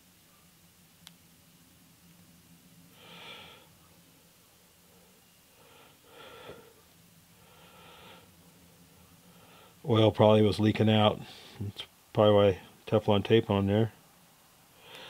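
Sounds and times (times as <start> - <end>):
faint breaths: 2.8 - 9.9, 11.2 - 11.8, 14.7 - 15.0.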